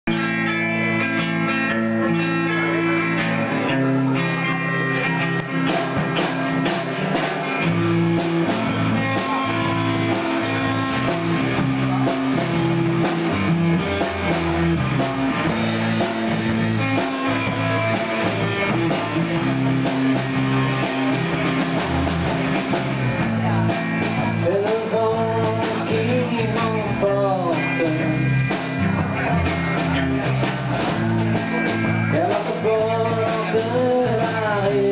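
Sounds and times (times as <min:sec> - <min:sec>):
live band playing: 0:00.1 - 0:34.9
person singing: 0:08.4 - 0:30.8, 0:31.5 - 0:34.9.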